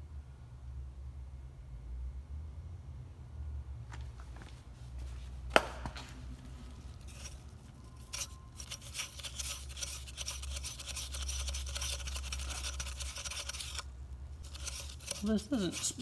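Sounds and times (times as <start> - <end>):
compressor wheel scratchy rubbing: 7.0 - 16.0.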